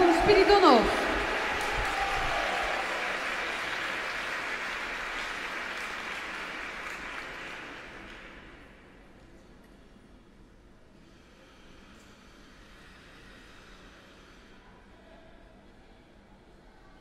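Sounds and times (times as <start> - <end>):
crowd applauding: 0.0 - 8.7.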